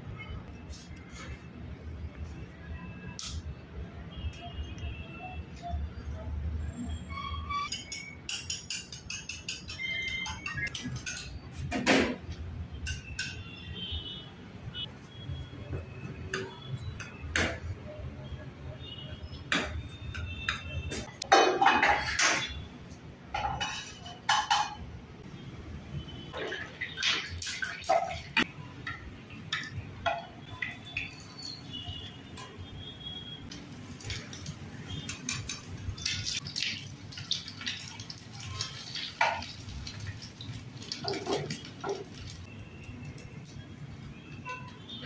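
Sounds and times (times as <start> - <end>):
spoon clinking steel bowl: 7.7 - 11.4.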